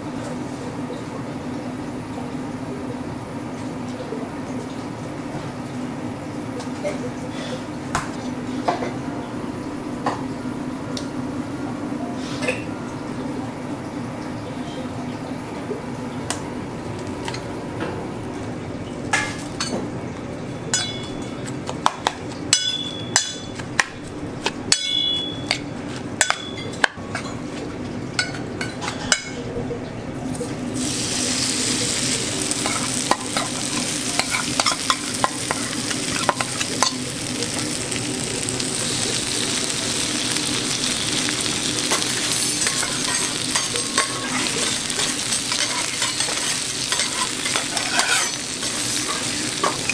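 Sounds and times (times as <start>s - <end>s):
food sizzling on hot griddle: 30.3s - 49.9s.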